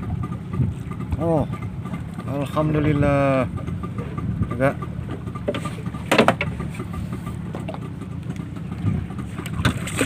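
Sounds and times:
small engine idling: 0:00.0 - 0:10.0.

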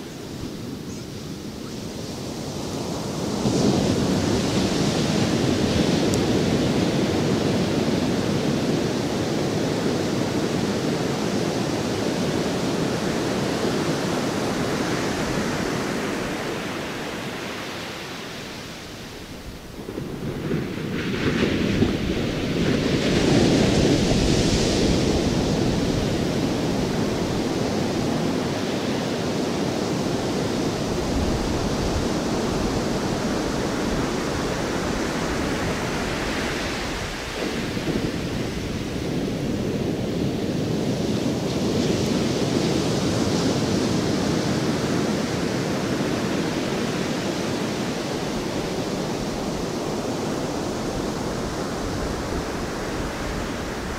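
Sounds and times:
ocean surf rushing: 0:00.0 - 0:53.9.

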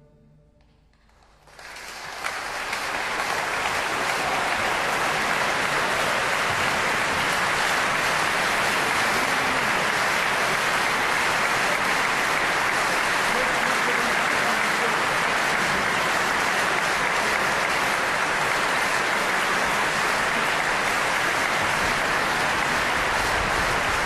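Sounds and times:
audience applause: 0:01.0 - 0:24.0.

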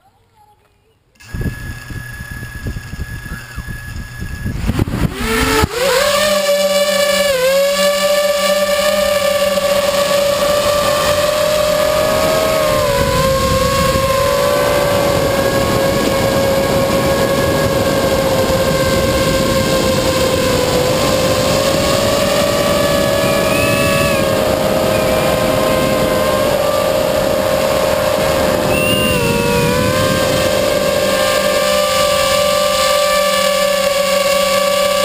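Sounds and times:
rush of air: 0:01.2 - 0:05.9, 0:20.6 - 0:31.6
electric motors whining: 0:01.2 - 0:35.0.

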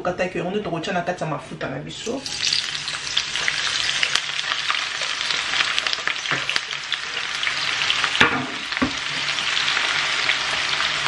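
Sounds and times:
onions sizzling in hot oil: 0:02.0 - 0:11.0.

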